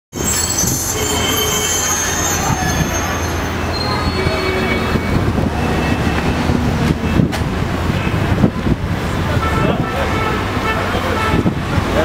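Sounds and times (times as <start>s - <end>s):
high-pitched metallic squeals: 0.2s - 7.2s
traffic rumble: 0.2s - 12.0s.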